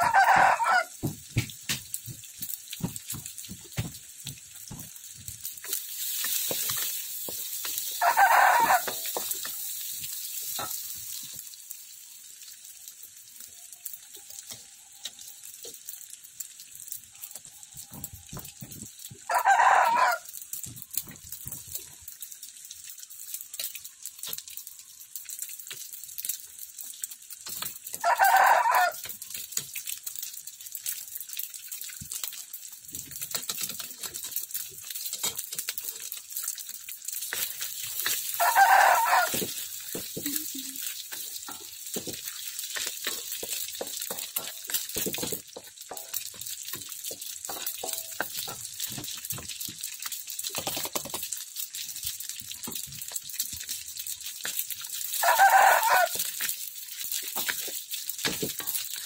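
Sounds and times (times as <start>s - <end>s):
chicken calling loudly: 0.0s - 0.9s, 8.0s - 8.8s, 38.4s - 39.4s, 55.2s - 56.1s
noodles sizzling in a wok: 0.0s - 59.0s.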